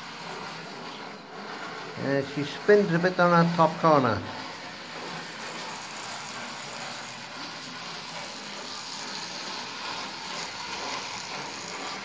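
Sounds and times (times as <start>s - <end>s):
small electric motor whirring: 0.0s - 12.0s
wheels running on rails: 0.0s - 12.0s.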